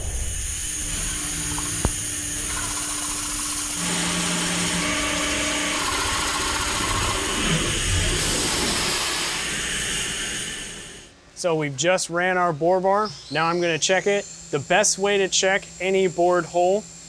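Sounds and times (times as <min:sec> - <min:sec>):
coolant spray hiss: 0:00.0 - 0:04.7, 0:05.7 - 0:11.1
machine hum: 0:00.0 - 0:11.7.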